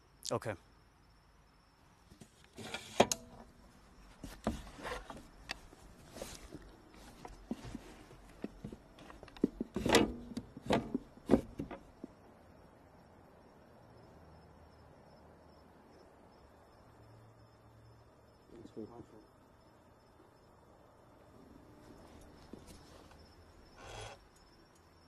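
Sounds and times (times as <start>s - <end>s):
wood creaking and rubbing: 4.1s - 11.9s.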